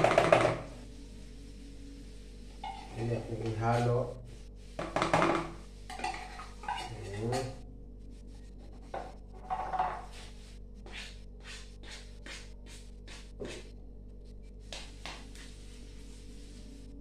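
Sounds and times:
low hum: 0.0 - 4.8, 5.5 - 17.0
spatula strokes: 10.0 - 17.0.

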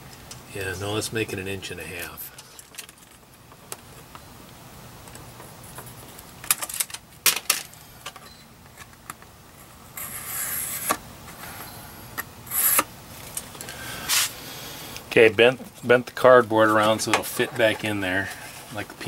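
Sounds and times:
cardboard scraping and creasing: 10.0 - 11.0.

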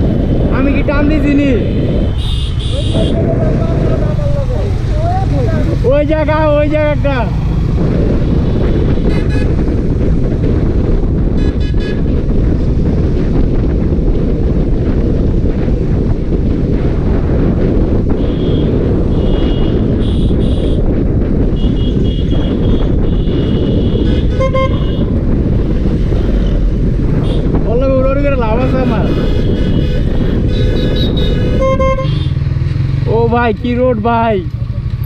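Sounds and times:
motorcycle low rumble: 0.0 - 35.0
wind rushing over microphone: 0.0 - 35.0
vehicle horns tooting: 1.7 - 3.2, 8.5 - 9.6, 18.2 - 20.8, 21.6 - 25.2, 27.2 - 27.5, 28.6 - 32.4.

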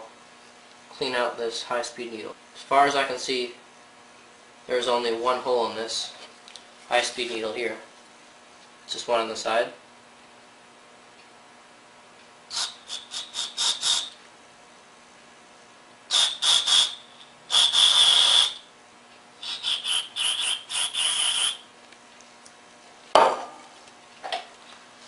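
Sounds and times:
aerosol spray hissing: 12.5 - 14.1, 16.1 - 18.6, 19.4 - 21.6.

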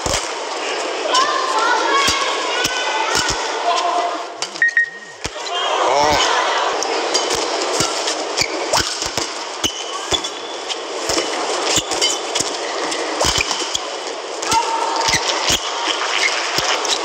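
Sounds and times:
racquets striking shuttlecock: 0.0 - 0.4, 2.0 - 3.5, 7.1 - 17.0
arena crowd noise: 0.0 - 17.0
shoes squeaking on court: 7.0 - 14.2, 15.0 - 17.0.

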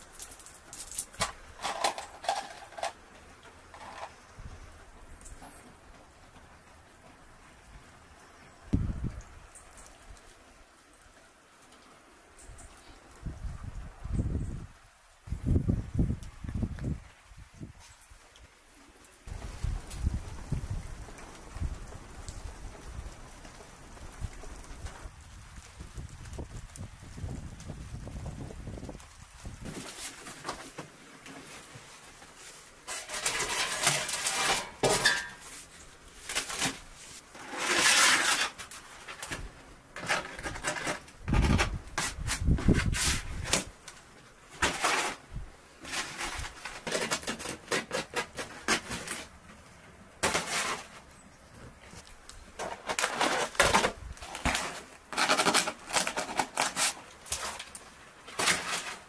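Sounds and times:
crinkles and soft knocks: 0.0 - 4.4, 19.1 - 59.0.

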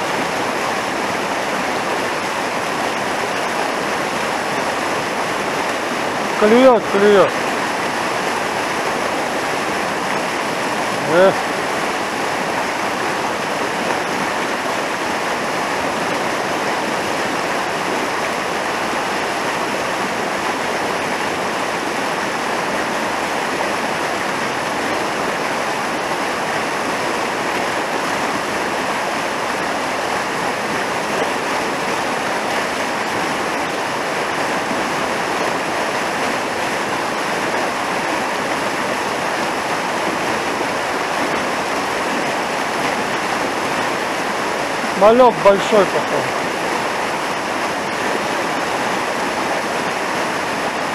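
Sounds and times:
river rushing over rapids: 0.0 - 50.9.

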